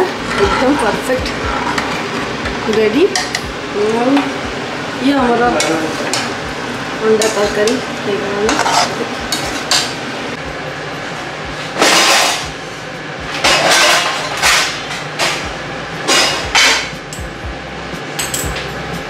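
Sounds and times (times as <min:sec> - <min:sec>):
kitchen utensils clattering: 0:00.0 - 0:04.3, 0:07.0 - 0:07.8, 0:08.4 - 0:10.0, 0:11.7 - 0:12.5, 0:13.3 - 0:17.2, 0:18.2 - 0:18.7.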